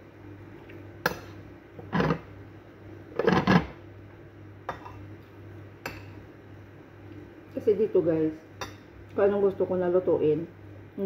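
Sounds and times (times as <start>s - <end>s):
steady low hum: 0.0s - 11.0s
metal spoon scraping a plate: 3.2s - 3.7s.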